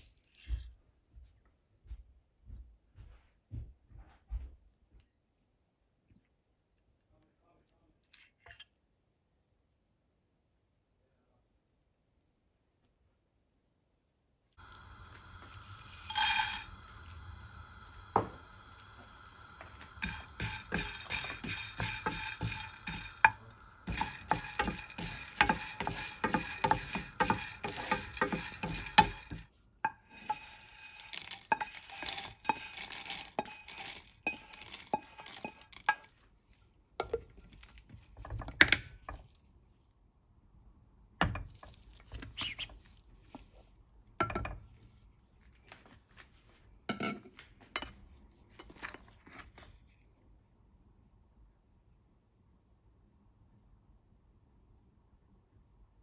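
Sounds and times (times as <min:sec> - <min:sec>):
knocks and clinks: 0:14.6 - 0:36.1
spice pods rattling in a pan: 0:14.6 - 0:36.2.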